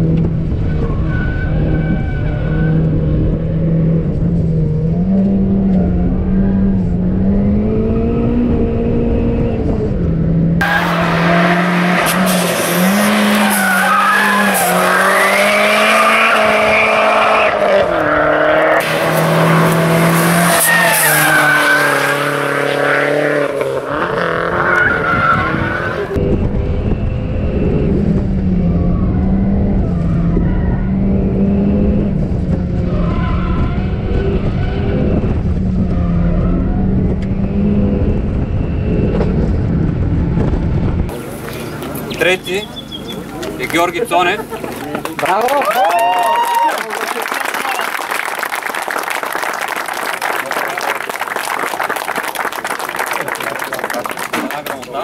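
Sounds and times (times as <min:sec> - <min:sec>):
car engine revving: 0:00.0 - 0:42.4
tyres squealing: 0:11.9 - 0:17.6.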